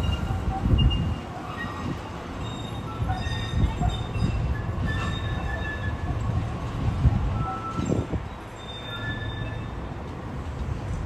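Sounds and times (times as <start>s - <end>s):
light-rail train rumbling: 0.0s - 11.0s
wheels squealing on rails: 0.0s - 11.0s.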